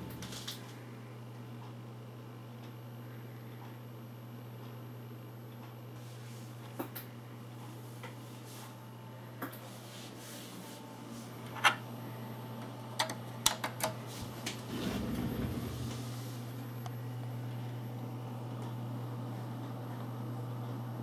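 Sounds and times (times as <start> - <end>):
desktop computer hum: 0.0 - 21.0
low rumble: 14.6 - 16.2.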